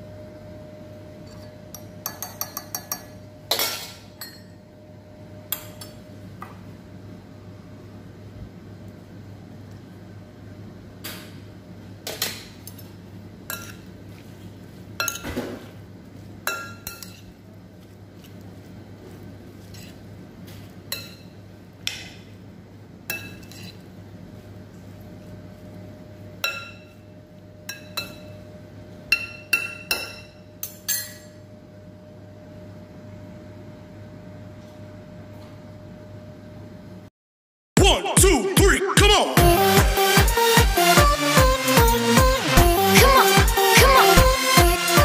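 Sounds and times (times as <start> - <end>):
utensil clinking against glass bowl: 1.3 - 4.6.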